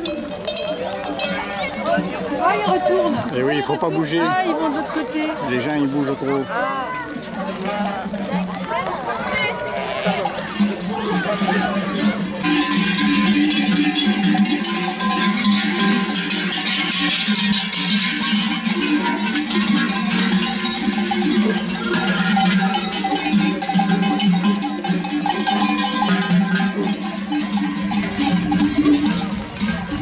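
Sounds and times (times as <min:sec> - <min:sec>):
sheep bells clanking: 0:00.0 - 0:30.0.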